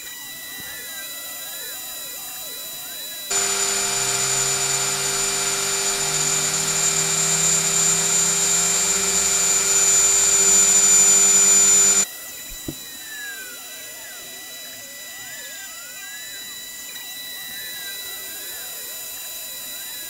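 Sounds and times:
faint hum: 0:03.3 - 0:12.0
router spindle whine: 0:03.3 - 0:12.7
click: 0:03.3 - 0:12.8.

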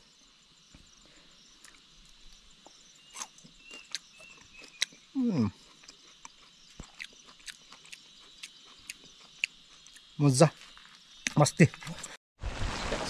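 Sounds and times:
crickets chirring: 0:00.0 - 0:13.0
person chewing crunchy larva: 0:01.5 - 0:12.1
person humming mm: 0:05.2 - 0:05.6.

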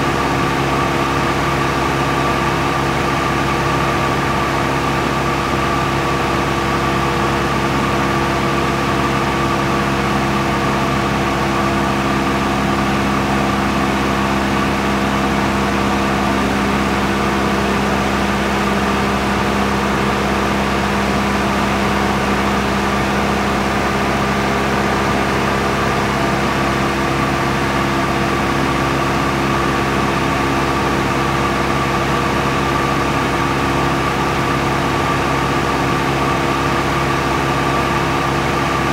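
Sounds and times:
engine droning steadily: 0:00.0 - 0:38.9.

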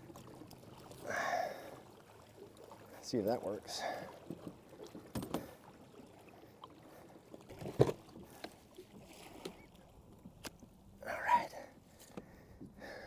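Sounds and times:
water lapping at hull: 0:00.0 - 0:13.0
knocks and thumps on plastic kayak: 0:07.5 - 0:08.6.

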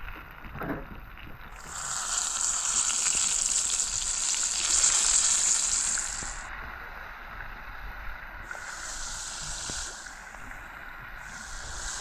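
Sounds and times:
fish frying in hot oil: 0:01.5 - 0:06.5.

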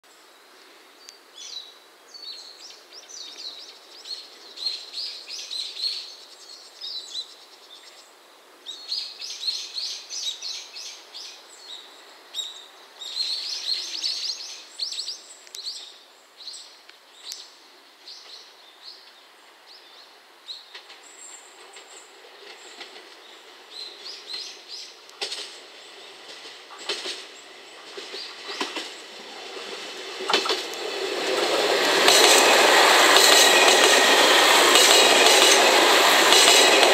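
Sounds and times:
faint low train rumble: 0:17.6 - 0:36.9.

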